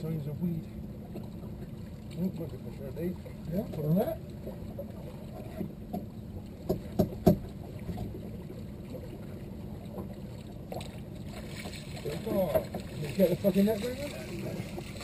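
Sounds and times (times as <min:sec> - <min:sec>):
water and wind around boat: 0:00.0 - 0:15.0
sharp knocks: 0:06.7 - 0:07.5.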